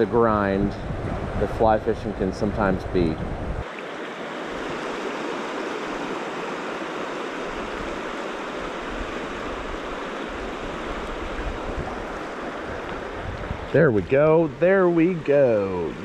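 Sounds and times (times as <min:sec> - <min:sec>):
stream water rushing over rocks: 0:03.6 - 0:16.0.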